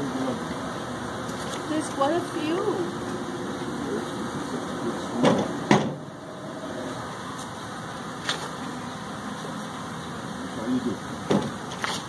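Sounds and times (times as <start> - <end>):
sharp knocks: 5.2 - 6.0.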